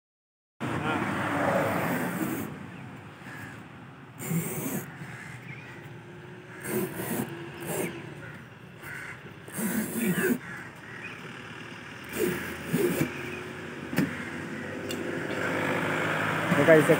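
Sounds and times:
blade cutting through rubber tyre: 0:01.3 - 0:02.6, 0:04.2 - 0:05.8, 0:06.4 - 0:11.1, 0:12.0 - 0:16.9.

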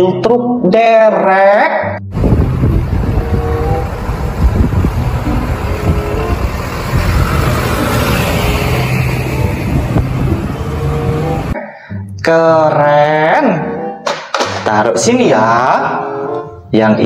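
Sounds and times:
road traffic noise: 0:02.1 - 0:11.6
tow truck engine running: 0:02.1 - 0:11.6.

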